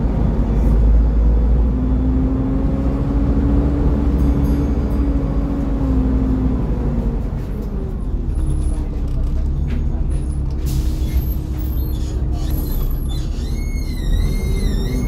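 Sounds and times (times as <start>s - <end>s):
diesel bus engine rumble: 0.0s - 15.0s
air brake hiss: 10.6s - 11.3s.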